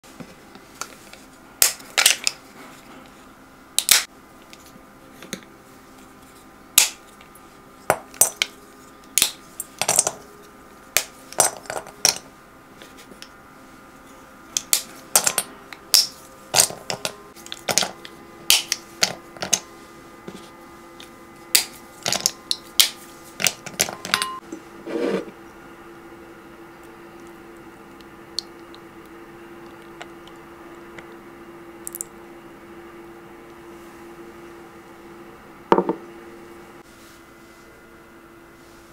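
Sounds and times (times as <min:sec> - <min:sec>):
pieces clinking into glass bowl: 0:23.8 - 0:24.4.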